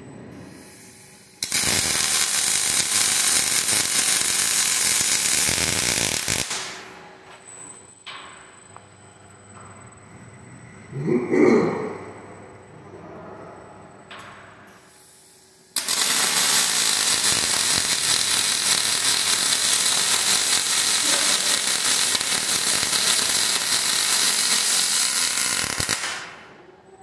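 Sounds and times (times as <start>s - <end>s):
welding arc crackling hiss: 0.5s - 7.0s, 14.8s - 26.5s.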